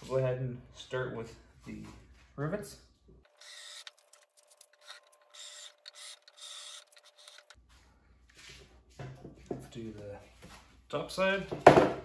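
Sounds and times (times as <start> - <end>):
cordless drill drilling metal: 3.3 - 7.6.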